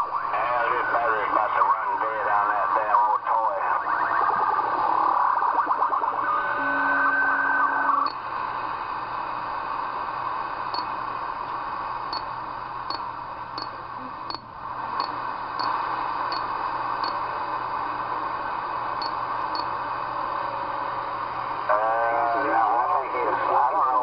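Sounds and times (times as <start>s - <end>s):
garbled radio signal with whistling: 0.0s - 8.1s, 21.7s - 24.0s
radio static hiss: 0.0s - 24.0s.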